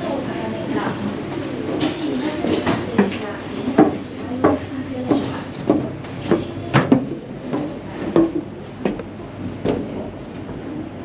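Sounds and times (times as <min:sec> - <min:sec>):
footsteps on steel stairs: 0:02.6 - 0:10.6.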